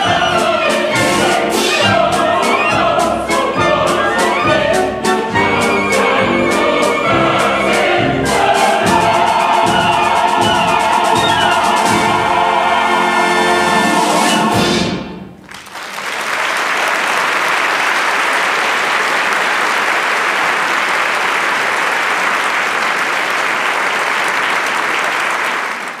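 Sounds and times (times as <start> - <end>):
audience applauding: 15.4 - 26.0.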